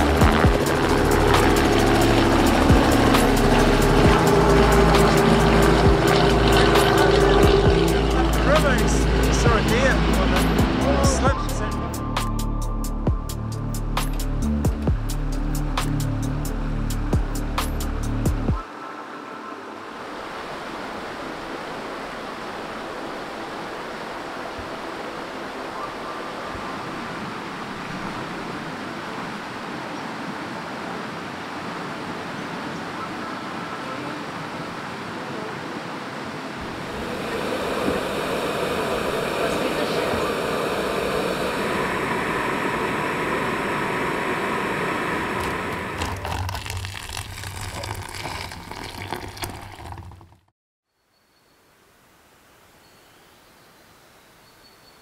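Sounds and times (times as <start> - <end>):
river flowing over stones: 18.6 - 50.5
gas burner hissing: 36.6 - 46.3
water pouring into a pouch: 45.4 - 50.5.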